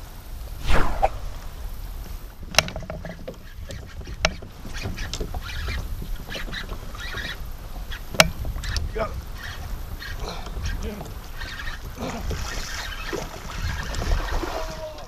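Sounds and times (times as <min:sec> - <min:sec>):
fish splashing in water: 0:11.4 - 0:15.0.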